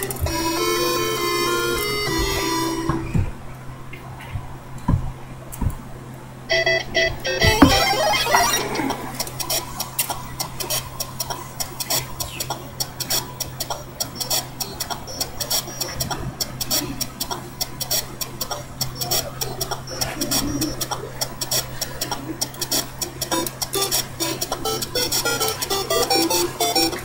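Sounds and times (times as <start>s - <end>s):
crackling clicks: 0.0s - 0.9s, 7.1s - 27.0s
steady low hum: 0.0s - 27.0s.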